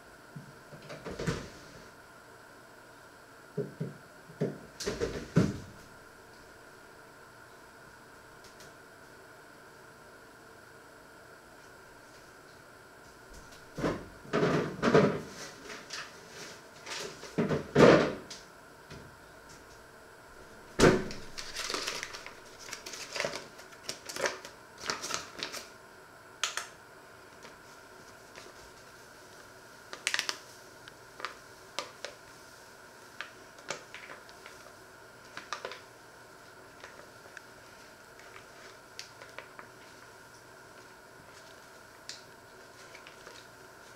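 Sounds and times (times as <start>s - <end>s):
paper flour bag handled: 21.0s - 25.7s, 42.5s - 43.9s.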